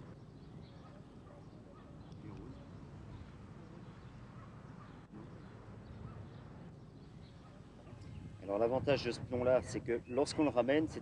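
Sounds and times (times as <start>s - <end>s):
faint bird chirps: 0.0s - 8.4s.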